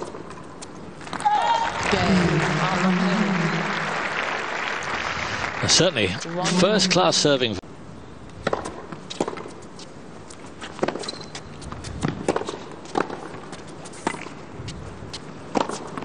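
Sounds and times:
tennis ball bouncing: 8.4s - 9.9s, 10.8s - 14.4s, 15.1s - 16.0s
tennis racquet hitting ball: 12.0s - 13.4s.

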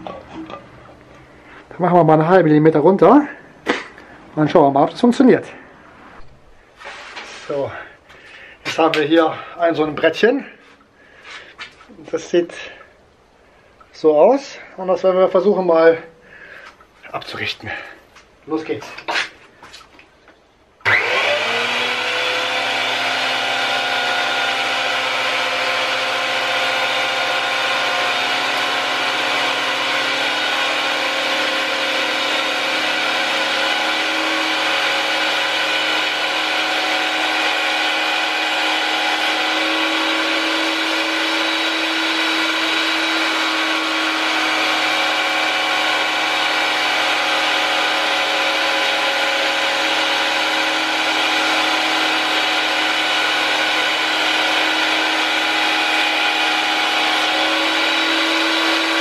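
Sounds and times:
jointer planer high whine: 20.8s - 59.0s.

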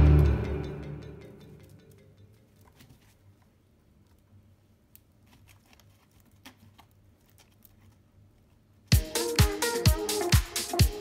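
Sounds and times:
claws scratching cardboard: 5.2s - 8.6s.

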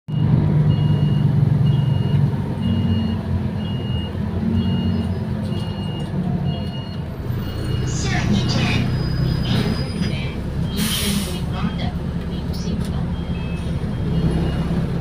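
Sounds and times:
bus engine humming: 0.1s - 15.0s
short high warning beeps: 0.7s - 12.0s.

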